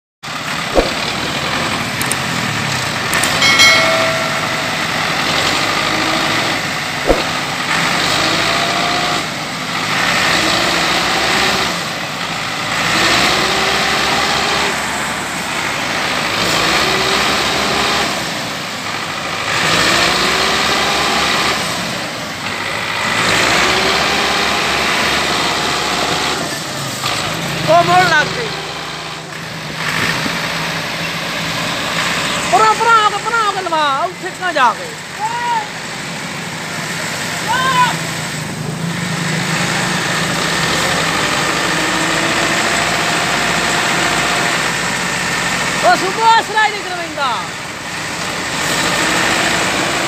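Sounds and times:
tractor diesel engine labouring: 0.2s - 4.2s, 4.8s - 50.0s
sharp knocks: 0.7s - 1.2s, 3.2s - 6.0s, 7.0s - 7.4s.

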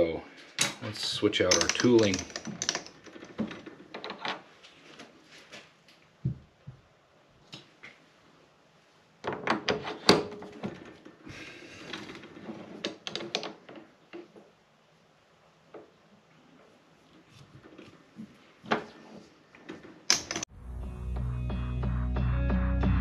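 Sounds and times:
metal tool post clicks and clanks: 1.5s - 3.5s.

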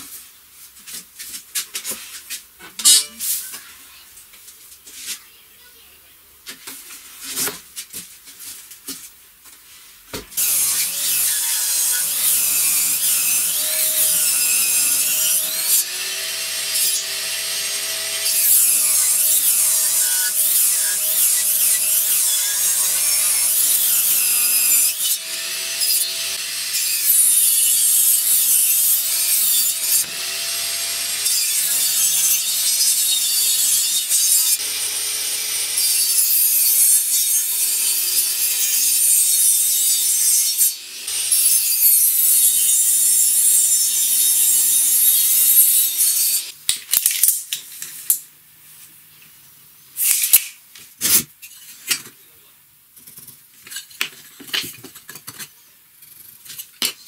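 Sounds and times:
table saw ripping wood: 10.4s - 47.3s.

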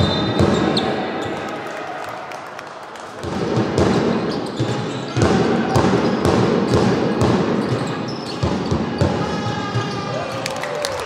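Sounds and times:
basketball bouncing on gym floor: 0.0s - 0.8s, 3.2s - 9.3s.

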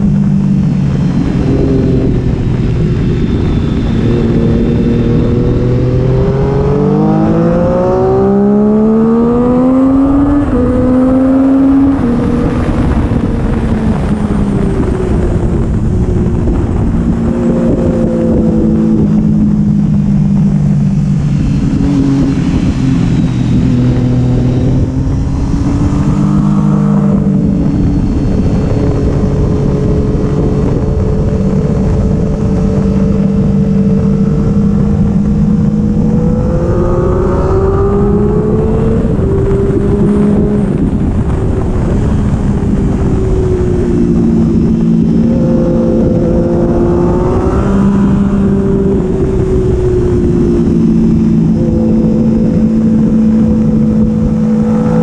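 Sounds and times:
motorcycle engine revving: 0.0s - 55.0s
wind rush: 0.0s - 55.0s.

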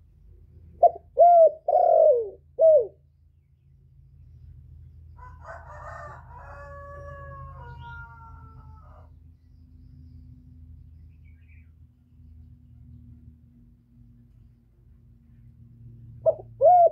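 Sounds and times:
dove cooing: 0.7s - 3.0s, 16.2s - 16.9s.

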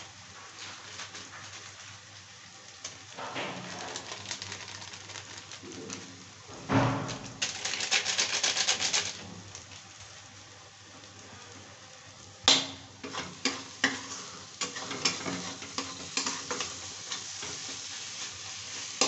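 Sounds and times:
crackling rustles: 0.0s - 10.4s
low sizzle: 0.0s - 19.0s
plastic packet crinkling: 3.6s - 6.2s, 7.4s - 9.2s.

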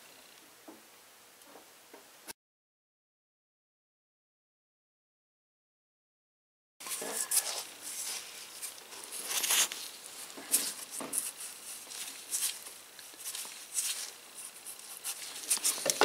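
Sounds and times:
gloved hands rustling: 6.8s - 16.0s.

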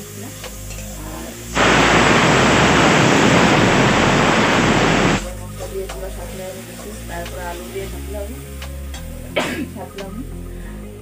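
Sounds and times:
quiet background music: 0.0s - 1.6s, 5.2s - 11.0s
static-like hiss: 1.3s - 5.2s.

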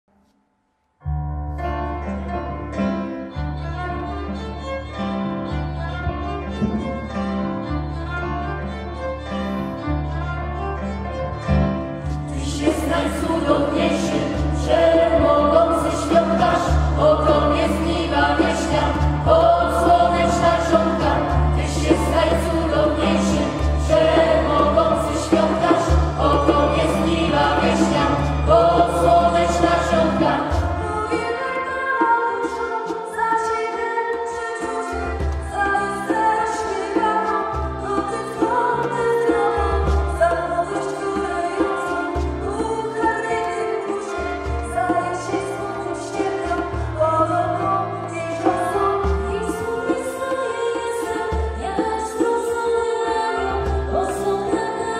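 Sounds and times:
violin: 1.1s - 54.9s
djembe drum: 12.0s - 31.5s, 34.6s - 52.7s
choir singing: 12.3s - 33.5s.

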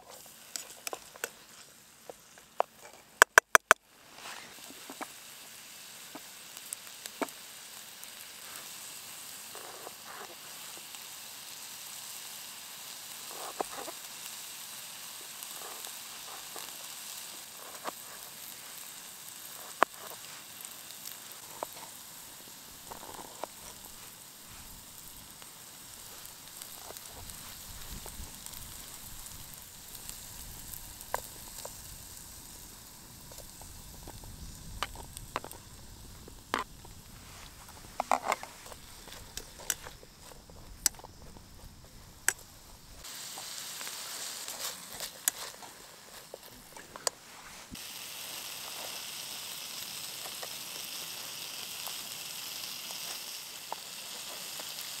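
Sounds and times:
onions sizzling in a frying pan: 0.0s - 55.0s.

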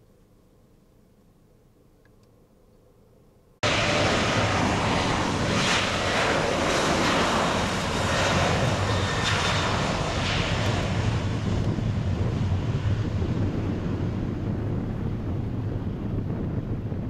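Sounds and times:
jet engine rush with whine: 3.6s - 17.0s.

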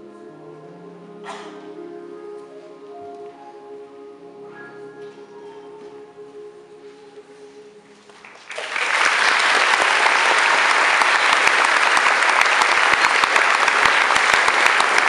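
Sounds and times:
choir singing chord: 0.0s - 7.9s
audience applause: 8.2s - 15.0s.

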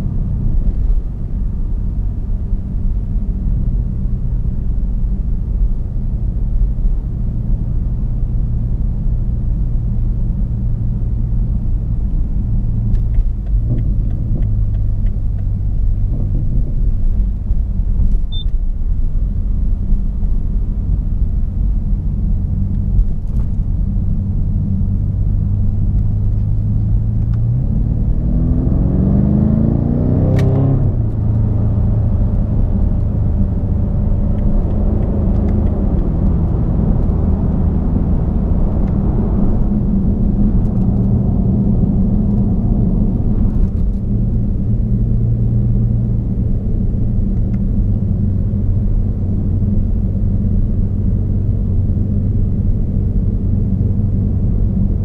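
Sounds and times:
car engine cruising drone: 0.0s - 55.0s.

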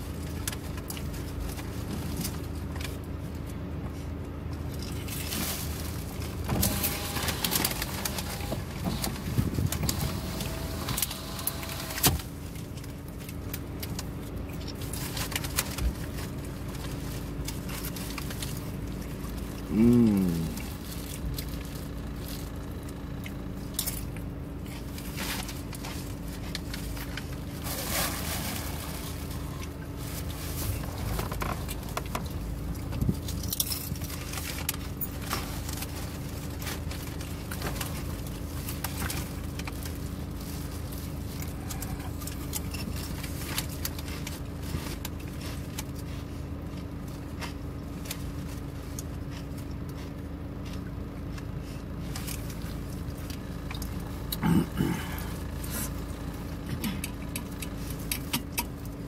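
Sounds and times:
car cabin hum: 0.0s - 59.0s
chewing: 12.8s - 27.3s, 38.6s - 59.0s
rustling: 24.6s - 32.4s.

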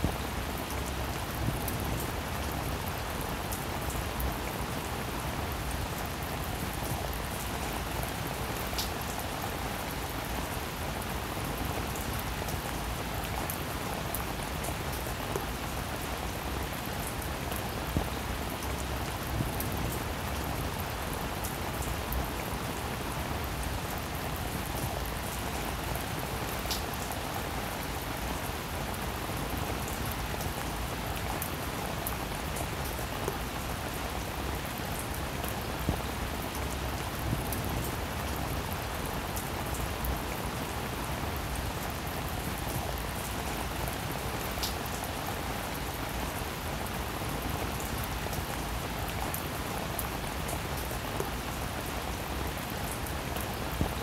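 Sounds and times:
rain on wet pavement: 0.0s - 54.0s.

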